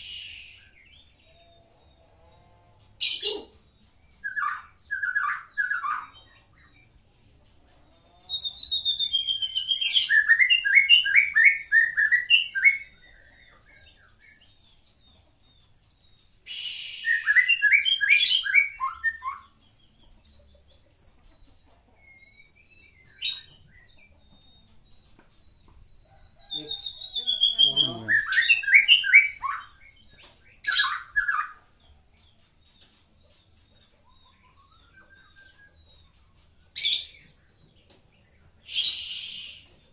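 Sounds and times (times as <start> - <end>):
songbird whistles and trills: 0.0 - 1.1, 3.1 - 6.9, 8.4 - 14.5, 15.9 - 20.1, 21.6 - 31.7, 33.9 - 37.6, 38.3 - 39.9.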